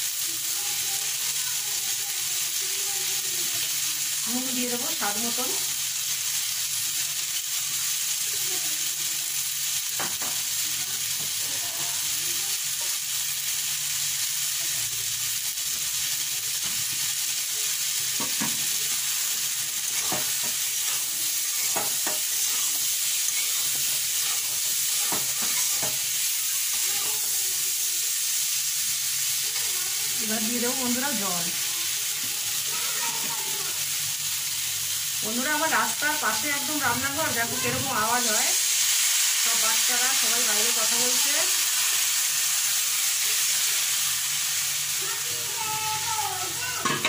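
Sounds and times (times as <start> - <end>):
vegetables sizzling in hot oil: 0.0 - 47.0
metal spatula scraping pan: 19.6 - 26.0.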